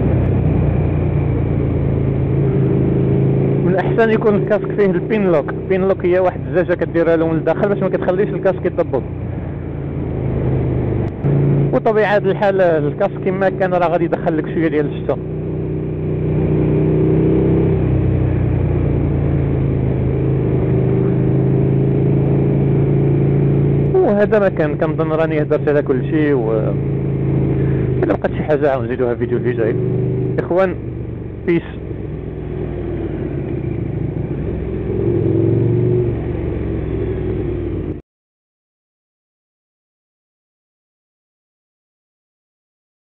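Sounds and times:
motorcycle engine cruising: 0.0s - 38.0s
road and wind rush: 0.0s - 38.0s.

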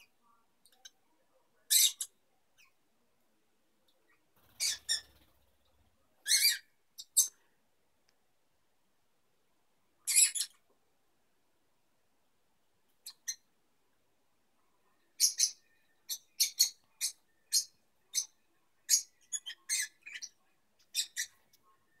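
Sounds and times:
lovebirds chirping: 0.0s - 2.8s, 3.8s - 7.6s, 10.0s - 10.7s, 12.9s - 13.5s, 14.8s - 22.0s.

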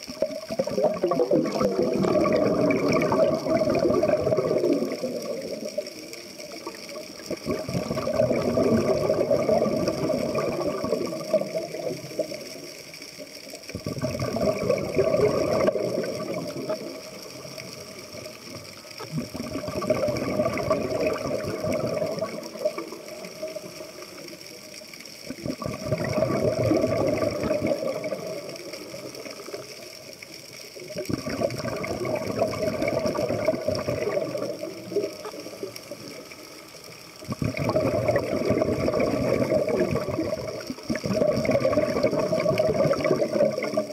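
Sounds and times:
scuba exhalation bubbling: 0.0s - 12.7s, 13.5s - 30.0s, 30.6s - 43.9s.

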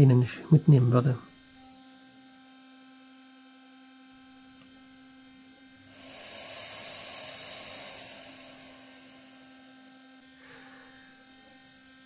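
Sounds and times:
mill spindle humming: 0.0s - 12.0s
loud airy hiss: 5.8s - 9.6s.

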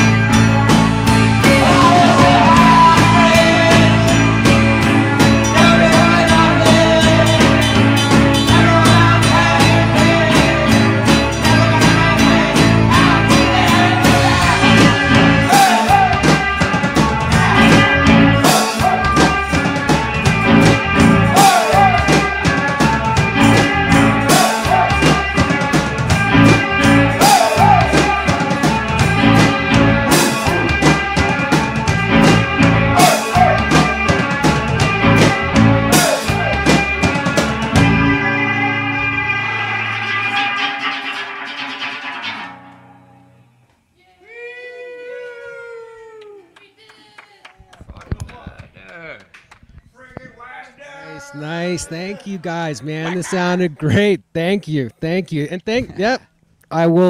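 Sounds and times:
drum kit: 0.0s - 42.7s
strummed acoustic guitar: 0.0s - 43.3s
person singing: 1.3s - 4.5s, 5.2s - 19.4s, 21.1s - 25.7s, 26.3s - 31.4s, 32.5s - 34.3s, 35.0s - 41.1s.

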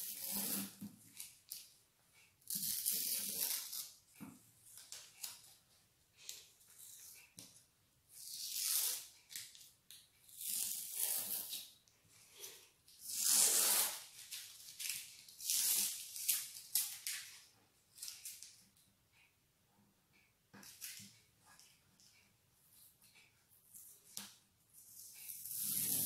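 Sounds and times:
masking tape peeling off paper: 25.3s - 26.0s.

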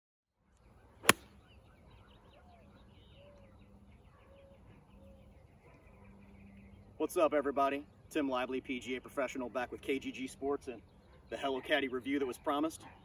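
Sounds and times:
faint birdsong: 0.3s - 13.0s
golf club striking ball: 1.0s - 1.3s.

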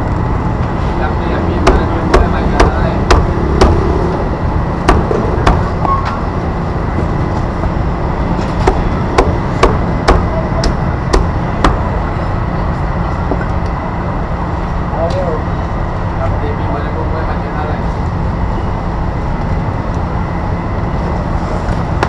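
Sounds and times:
low rumble of street noise: 0.0s - 22.0s
knife chopping on cutting board: 1.6s - 3.8s.

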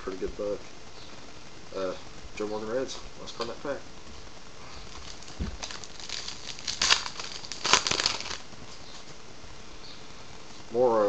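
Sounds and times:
card pack wrapper tearing: 4.9s - 8.4s.

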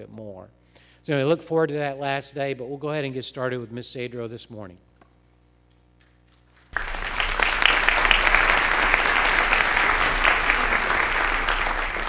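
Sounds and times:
audience applauding: 6.7s - 12.0s.

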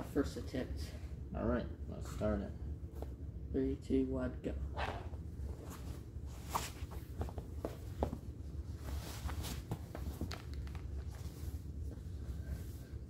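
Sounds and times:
fabric and shoe rubber scuffing: 5.6s - 10.4s.

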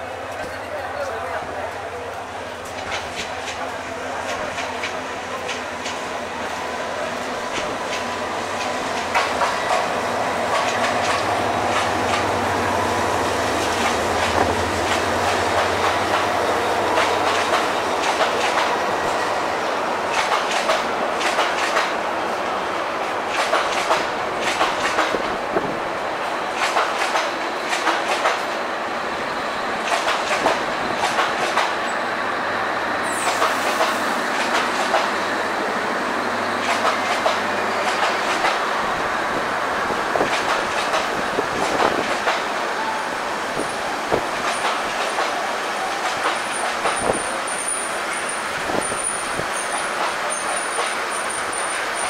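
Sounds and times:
train rumbling past: 0.0s - 52.0s
wheels clicking over rail joints: 10.5s - 12.4s, 20.1s - 22.0s, 23.3s - 25.4s, 26.6s - 28.5s, 29.8s - 31.8s, 36.6s - 38.6s, 43.6s - 52.0s.

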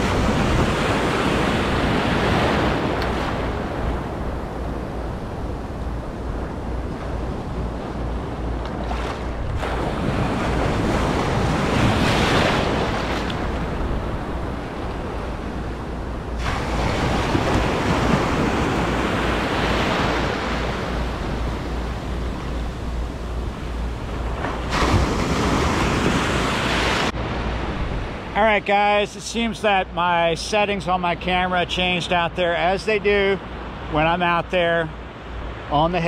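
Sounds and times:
wind buffeting microphone: 0.0s - 28.4s
rough surf washing: 0.0s - 36.0s.

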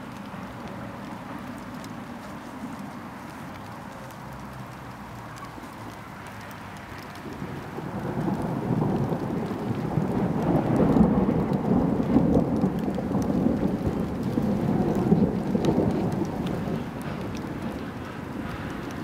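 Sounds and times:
faint raindrops ticking: 0.0s - 19.0s
rolling thunder rumble: 7.2s - 19.0s.

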